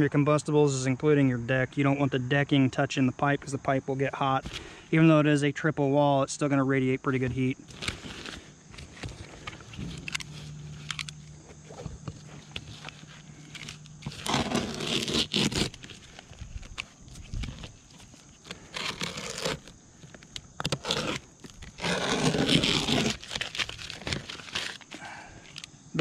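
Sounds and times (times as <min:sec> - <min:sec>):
utility knife cutting roofing: 0:07.7 - 0:19.7, 0:20.6 - 0:25.0.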